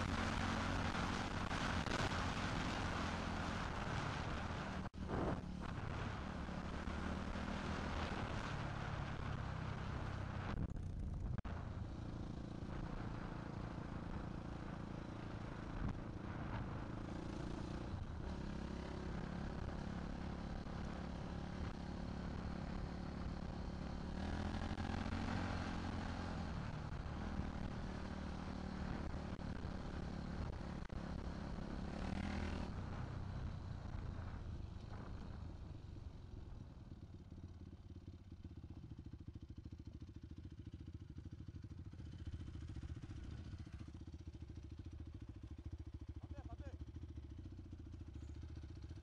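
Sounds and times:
motorcycle engine revving: 0:00.0 - 0:49.0.

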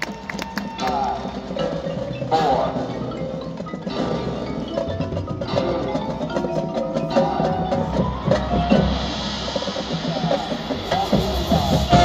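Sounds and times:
brass instruments: 0:00.0 - 0:12.0.

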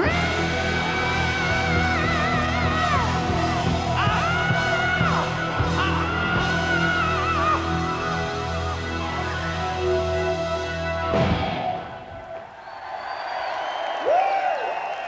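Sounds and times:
rock band sustained chord: 0:00.1 - 0:12.1.

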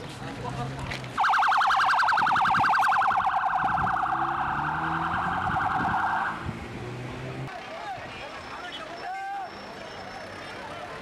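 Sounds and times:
vehicle engine hum: 0:00.0 - 0:11.0
siren warbling: 0:01.2 - 0:06.4.

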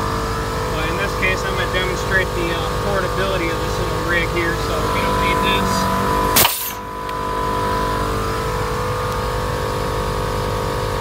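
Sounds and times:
truck engine idling: 0:00.0 - 0:07.1
electric air compressor humming: 0:00.0 - 0:07.8
sharp click: 0:06.4 - 0:06.8.

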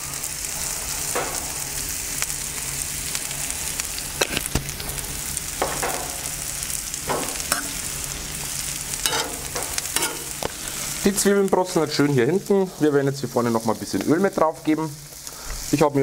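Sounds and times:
onions sizzling on griddle: 0:00.0 - 0:16.0
sharp pops and crackles: 0:04.2 - 0:04.9.

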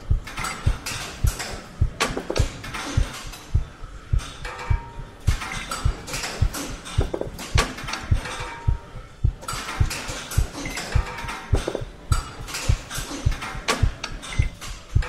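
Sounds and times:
low repeating thump: 0:00.1 - 0:15.0
clattering clicks and rattles: 0:00.2 - 0:03.6, 0:04.2 - 0:08.8, 0:09.4 - 0:15.0.

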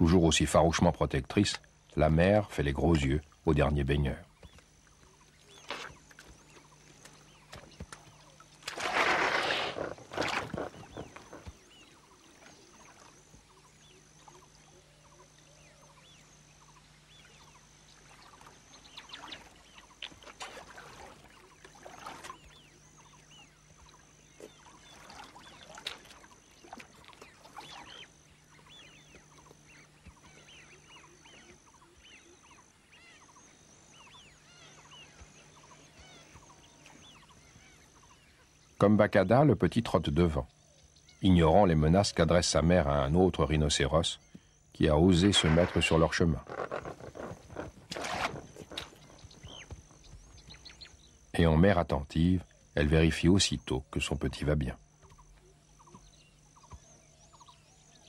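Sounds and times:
rhinoceroses splashing in water: 0:05.4 - 0:13.3, 0:18.0 - 0:29.2, 0:45.1 - 0:50.8.

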